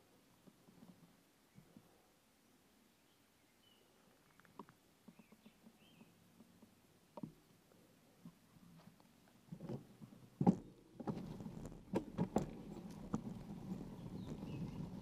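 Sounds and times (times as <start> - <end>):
tyres rolling on dirt: 9.4 - 15.0
bicycle rattling and knocking: 10.4 - 15.0.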